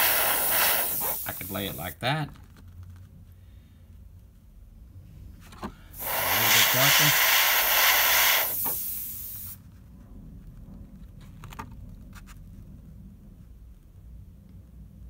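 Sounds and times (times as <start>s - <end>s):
airbrush spraying hiss: 0.0s - 2.0s, 6.0s - 9.6s.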